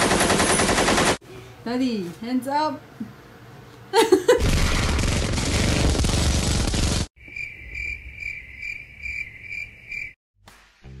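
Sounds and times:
rapid machine-gun fire: 0.0s - 1.2s, 4.4s - 7.1s
crickets chirping: 7.2s - 10.2s.

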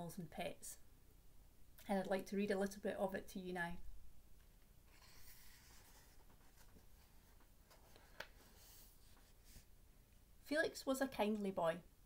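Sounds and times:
book pages turning: 4.9s - 9.7s.

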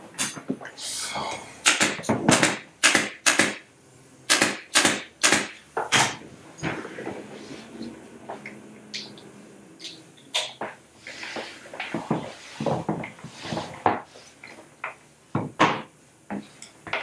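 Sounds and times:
pneumatic stapler firing: 1.6s - 3.6s, 4.3s - 6.2s.

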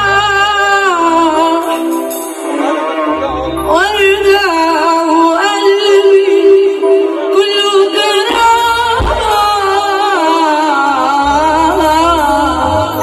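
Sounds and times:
bass line: 0.0s - 1.8s, 2.6s - 5.4s, 10.9s - 13.0s
woman singing into microphone: 0.0s - 3.0s, 3.6s - 13.0s.

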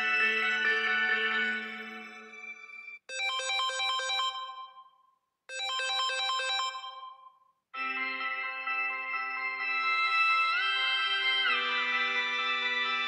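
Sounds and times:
phone ringtone melody: 3.1s - 4.9s, 5.5s - 13.0s.

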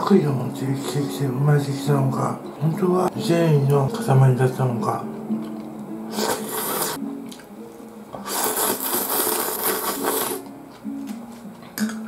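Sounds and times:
soft background music: 0.0s - 12.0s
person slurping noodles: 6.1s - 7.0s, 8.2s - 10.5s.

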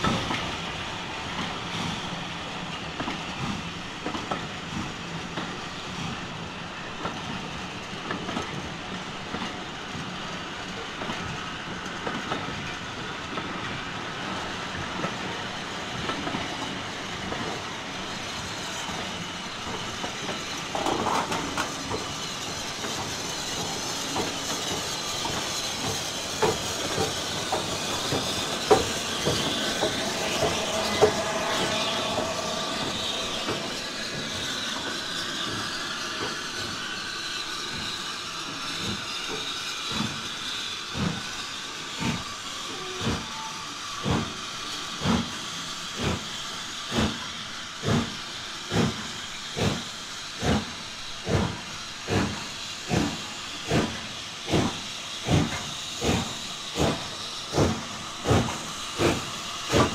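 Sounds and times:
model train running: 0.0s - 59.9s
wavering motor whine: 26.8s - 37.8s.

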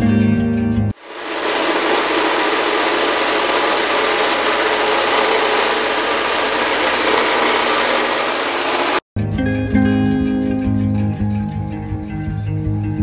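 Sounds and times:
floor sander running: 1.0s - 9.0s
guitar music: 9.2s - 13.0s.

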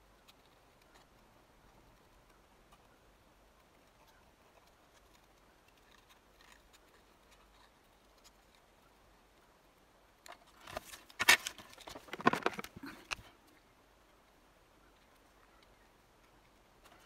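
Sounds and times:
paper rustling: 10.4s - 13.1s.

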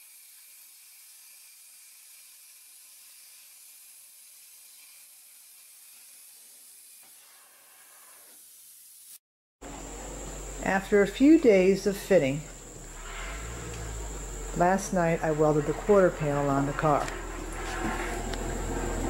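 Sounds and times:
plasma cutter hissing: 0.0s - 9.2s.

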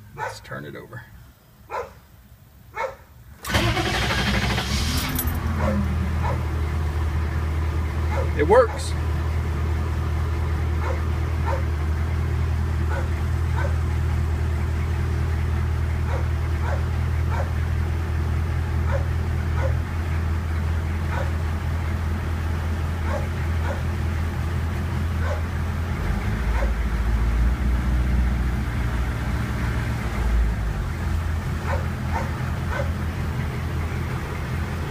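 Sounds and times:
dog barking: 0.2s - 0.5s, 1.7s - 2.0s, 2.7s - 3.1s, 5.6s - 6.5s, 8.1s - 8.9s, 10.8s - 11.7s, 12.9s - 13.8s, 16.0s - 17.6s, 18.8s - 19.8s, 21.1s - 21.4s, 23.0s - 23.9s, 25.2s - 25.5s, 26.5s - 26.8s, 31.6s - 33.0s
diesel engine idling: 3.3s - 34.9s.

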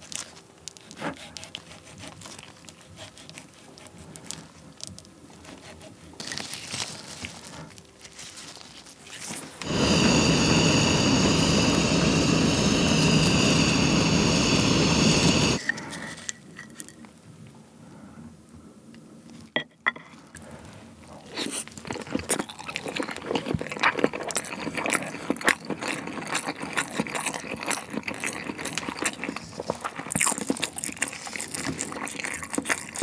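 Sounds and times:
blowtorch hissing: 9.6s - 15.7s.

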